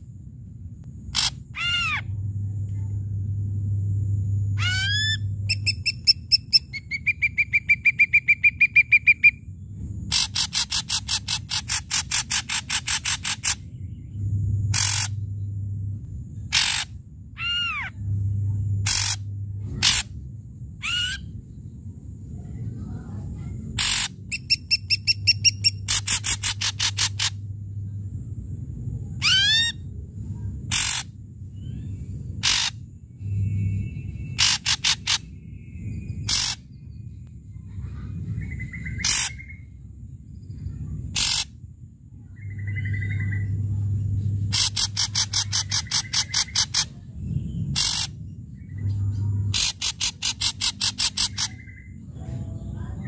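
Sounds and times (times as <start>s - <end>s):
bird singing varied song: 4.5s - 15.6s, 23.8s - 28.0s, 30.7s - 41.4s, 42.2s - 53.0s.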